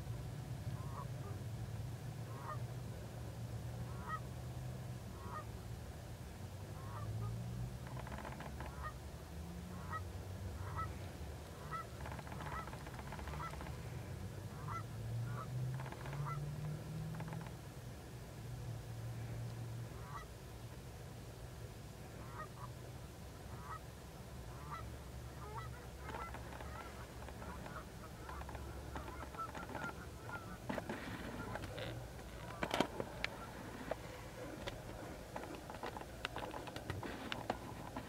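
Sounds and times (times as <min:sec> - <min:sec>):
geese honking: 0:00.8 - 0:01.4, 0:02.3 - 0:02.6, 0:03.9 - 0:04.2, 0:05.1 - 0:05.5, 0:06.8 - 0:07.3, 0:09.7 - 0:10.0, 0:10.6 - 0:13.9, 0:14.5 - 0:16.5, 0:20.0 - 0:20.3, 0:22.2 - 0:22.8, 0:23.5 - 0:23.9, 0:24.5 - 0:38.0
steady low hum: 0:08.7 - 0:38.0
sharp clicks and knocks: 0:30.6 - 0:38.0.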